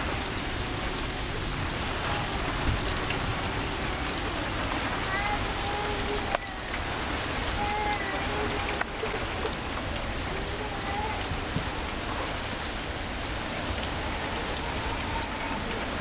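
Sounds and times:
rain falling: 0.0 - 16.0
child crying: 0.1 - 2.9, 3.5 - 12.0, 13.6 - 16.0.

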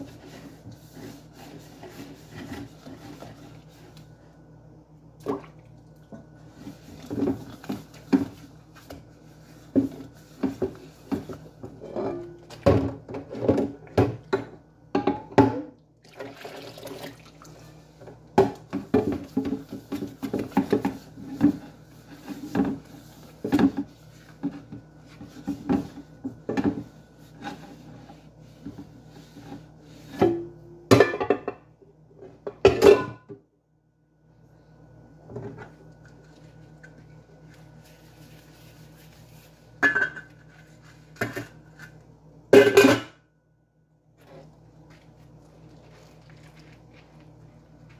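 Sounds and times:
dishes being scrubbed: 0.0 - 4.0, 6.4 - 12.6, 16.4 - 31.2, 44.2 - 47.9
dishes knocking and clinking: 9.8 - 15.7, 30.2 - 31.7, 39.8 - 40.4, 42.6 - 43.2.

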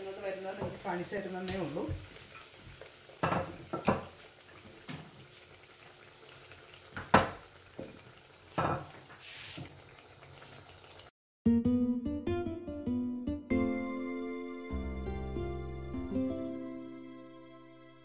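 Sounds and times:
food frying in hot oil: 0.0 - 11.1
soft piano music: 11.5 - 18.0.

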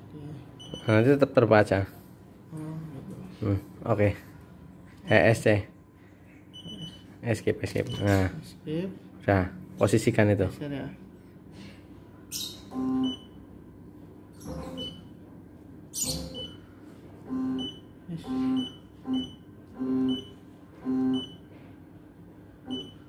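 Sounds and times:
short electronic beeps: 14.4 - 15.1, 16.0 - 16.6, 22.7 - 23.0.

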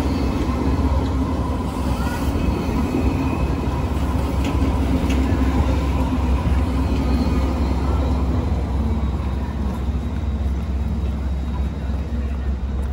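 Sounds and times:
tram hum: 0.0 - 12.9
tram rumbling past: 0.0 - 12.9.

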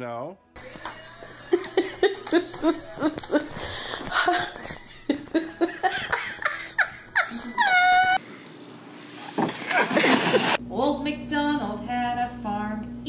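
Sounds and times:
person laughing: 1.4 - 8.2, 9.6 - 10.6.

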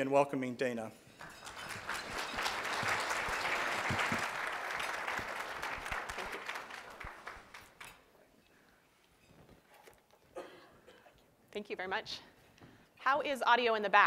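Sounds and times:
audience applauding: 1.2 - 8.0.

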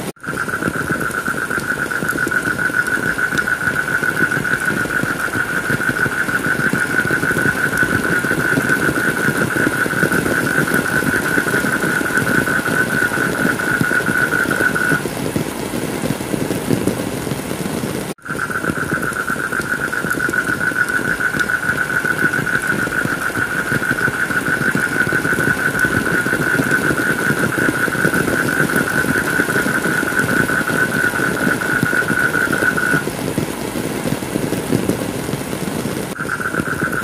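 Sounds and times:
heavy rain: 0.0 - 37.0
high rapidly pulsing tone: 36.2 - 37.0.

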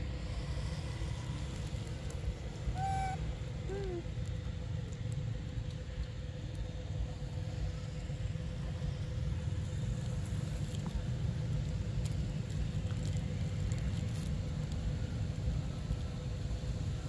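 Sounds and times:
faint steady hum: 0.0 - 17.0
low rumble: 0.0 - 17.0.

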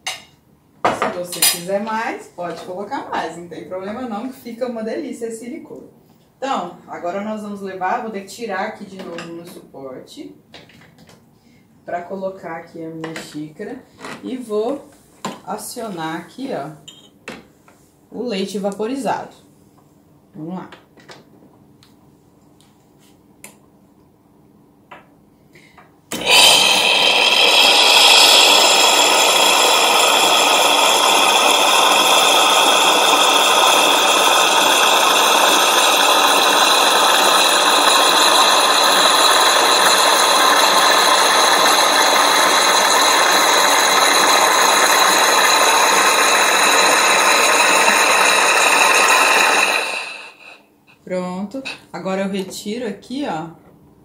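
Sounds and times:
milk foam pouring into cup: 26.1 - 50.5
espresso machine steam wand hissing: 26.1 - 50.6.

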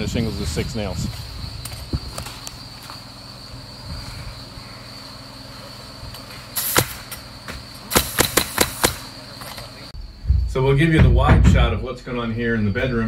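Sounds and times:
nail gun firing nails: 6.6 - 7.2, 7.9 - 9.1
short air hiss: 6.6 - 7.2.

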